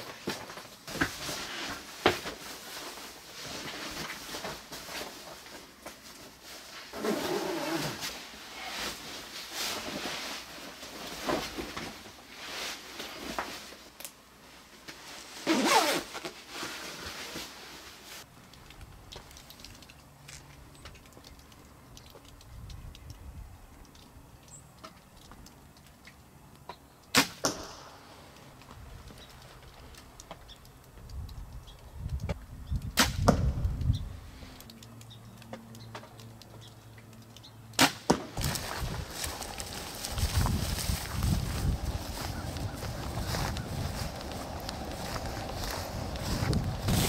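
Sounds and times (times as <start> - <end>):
clothes rustling: 0.0 - 18.3, 38.4 - 47.0
zipper zipping: 6.9 - 8.2, 15.4 - 16.4
bow shot snap: 27.1 - 28.0, 33.0 - 33.6.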